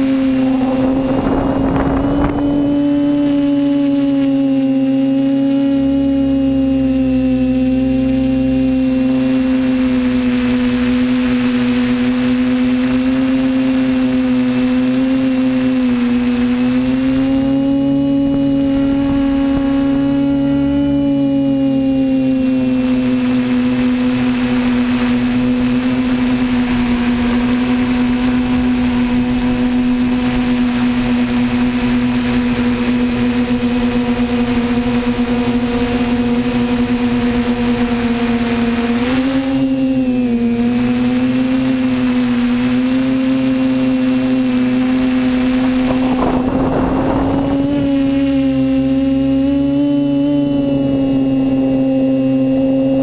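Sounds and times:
drone motors whining: 0.0 - 53.0.

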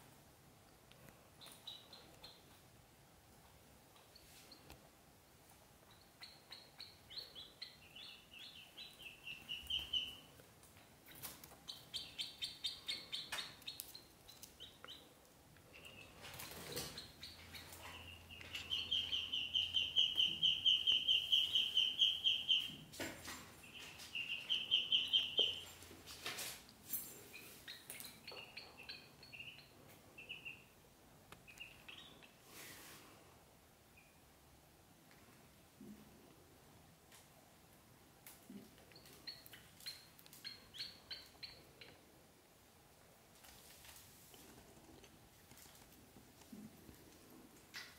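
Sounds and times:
ducklings peeping: 1.4 - 2.6, 5.8 - 10.3, 11.0 - 15.1, 15.7 - 22.8, 23.6 - 25.9, 27.3 - 30.8, 31.4 - 32.4, 38.9 - 42.0.

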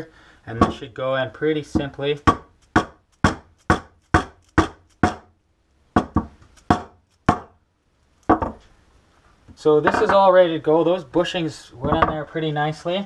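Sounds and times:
rubber mallet knocks on metal: 0.6 - 0.8, 1.8 - 5.3, 6.0 - 7.6, 8.3 - 8.6.

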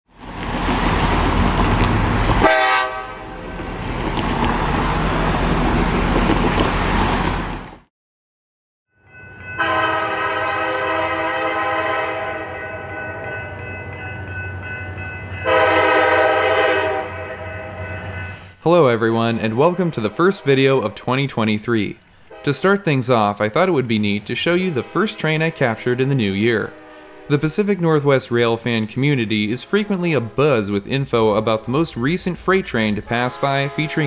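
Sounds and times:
locomotive air horn chord: 2.4 - 3.4, 9.6 - 13.2, 15.4 - 18.0, 19.4 - 20.8, 22.3 - 22.6, 24.5 - 27.5, 33.1 - 34.0.

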